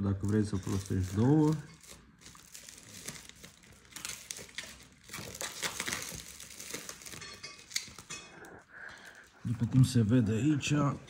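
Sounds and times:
packaging rustling and crinkling: 0.0s - 8.2s.

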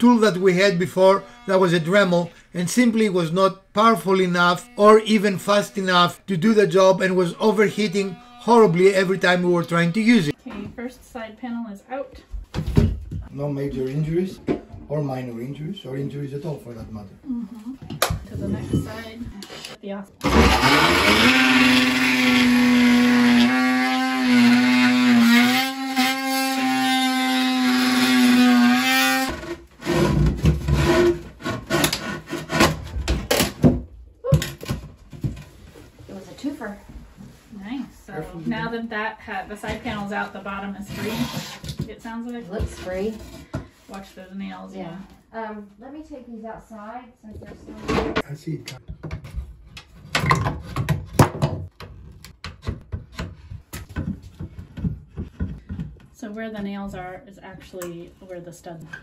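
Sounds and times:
oscillating multi-tool cutting wood: 0.0s - 10.4s, 18.9s - 32.8s
wooden knocks and rubbing: 47.4s - 56.2s.

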